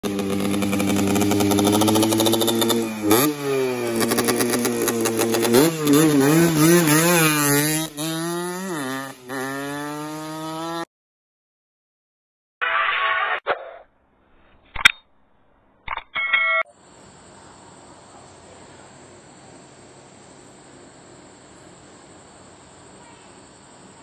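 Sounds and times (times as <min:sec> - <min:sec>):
motorcycle engine revving: 0:00.0 - 0:10.9.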